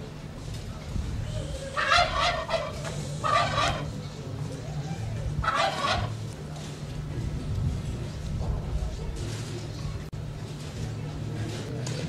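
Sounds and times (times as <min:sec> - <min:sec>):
steady low rumble: 0:00.0 - 0:11.5
fowl calling in short bursts: 0:01.8 - 0:03.9, 0:05.4 - 0:06.2.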